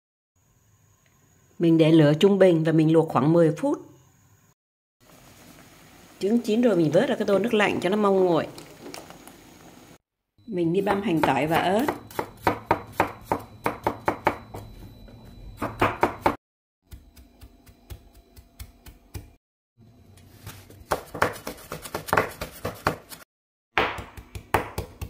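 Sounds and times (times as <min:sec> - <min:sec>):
knife chopping on wooden board: 0:11.2 - 0:14.7, 0:15.6 - 0:19.4, 0:20.8 - 0:23.2, 0:23.8 - 0:25.0.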